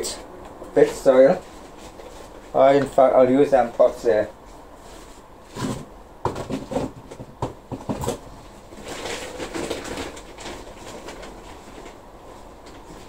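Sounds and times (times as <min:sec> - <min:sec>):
plastic pots knocking together: 0:06.2 - 0:08.2.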